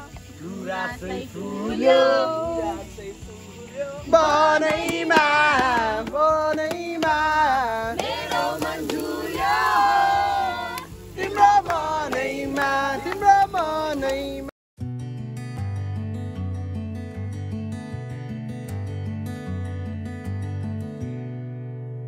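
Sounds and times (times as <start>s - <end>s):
song with loud singing: 0.0s - 14.5s.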